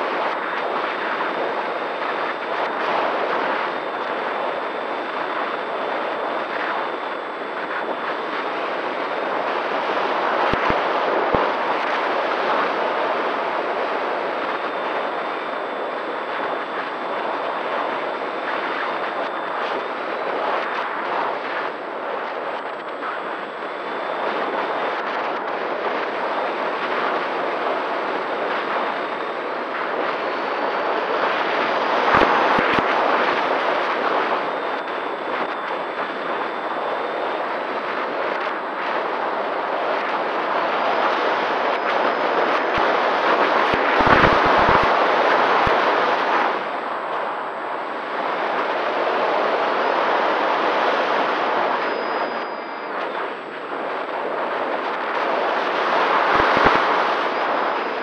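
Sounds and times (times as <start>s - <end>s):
faint motor and propeller whine: 0.0s - 58.0s
wind rushing over microphone: 0.0s - 58.0s
wind buffeting microphone thumps: 43.9s - 45.0s.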